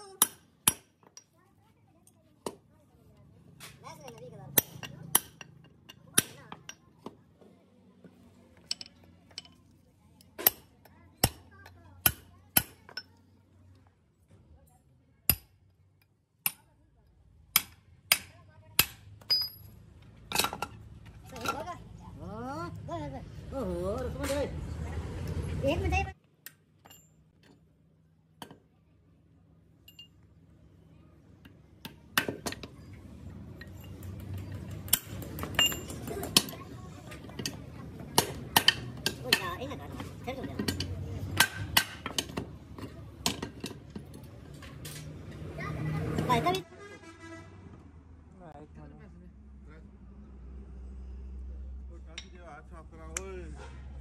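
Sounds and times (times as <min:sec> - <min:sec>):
metal clinks and knocks: 0:08.6 - 0:13.2, 0:18.8 - 0:21.8, 0:26.7 - 0:27.6, 0:29.8 - 0:30.3, 0:32.2 - 0:45.4.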